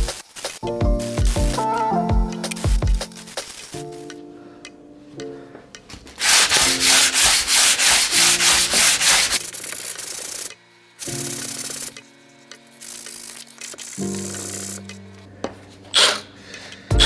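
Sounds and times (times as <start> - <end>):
background music: 0.0 - 9.6, 11.0 - 17.0
hand sanding scratchy strokes: 6.2 - 10.5.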